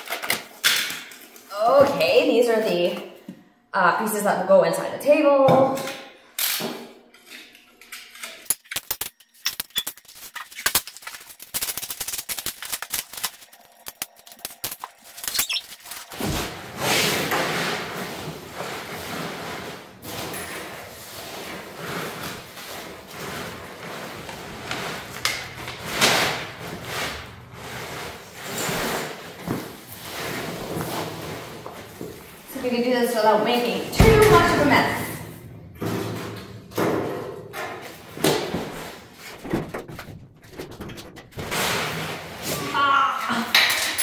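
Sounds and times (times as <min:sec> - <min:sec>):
foam packing pieces rustling: 0:08.8 - 0:32.6, 0:41.2 - 0:43.1.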